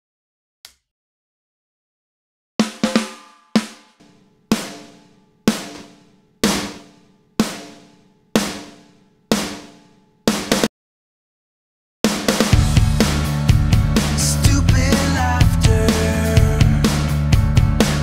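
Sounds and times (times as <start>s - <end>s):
snare drum hits: 2.6s - 10.7s.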